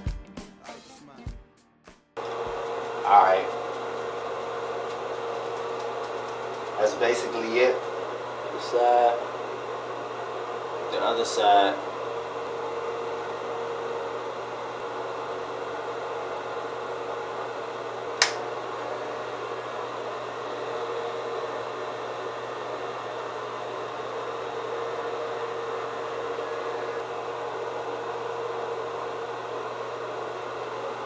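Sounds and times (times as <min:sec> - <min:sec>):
hair trimmer buzzing: 0:02.2 - 0:31.0
sharp click: 0:18.2 - 0:18.4.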